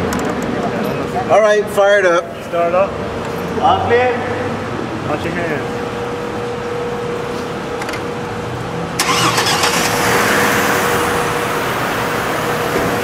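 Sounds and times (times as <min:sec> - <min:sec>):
car engine starting and idling: 0:08.9 - 0:13.0.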